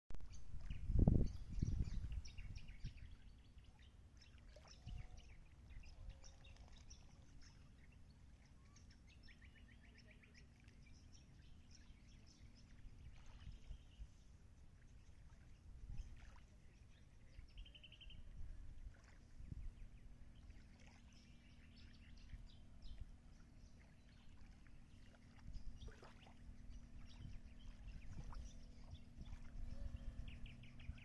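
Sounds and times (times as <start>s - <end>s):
wind buffeting microphone: 0.2s - 3.3s, 26.6s - 31.0s
faint steady hum: 0.3s - 31.0s.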